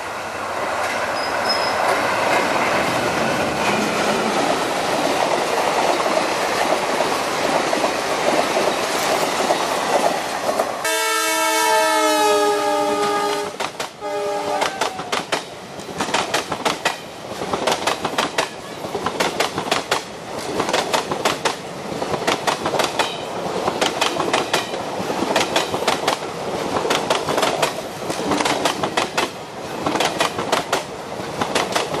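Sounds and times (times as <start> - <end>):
rush of wheels on track: 0.0 - 10.9.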